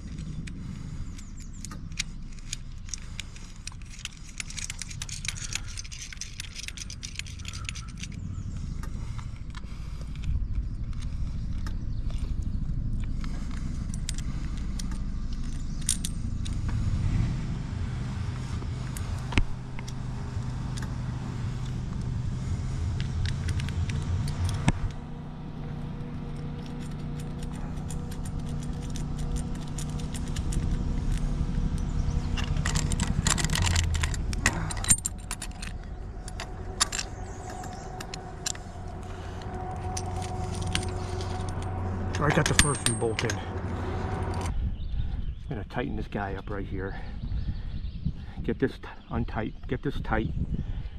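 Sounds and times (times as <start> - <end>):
steady low rumble: 0.0 - 50.9
metal bolts clinking on metal plate: 32.3 - 38.6, 40.0 - 43.5.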